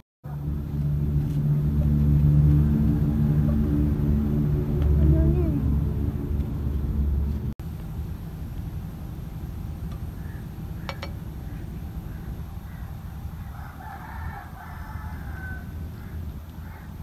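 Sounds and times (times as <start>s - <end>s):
steady low rumble: 0.2s - 17.0s
rooster crowing: 12.6s - 17.0s.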